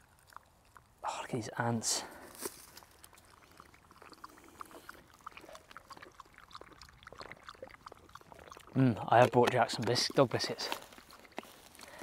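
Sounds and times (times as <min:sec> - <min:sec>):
dog lapping water: 0:02.8 - 0:12.0.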